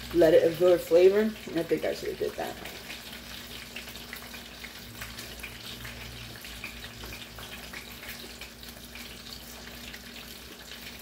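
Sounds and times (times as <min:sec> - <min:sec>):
oil sizzling in deep fryer: 0:00.0 - 0:11.0.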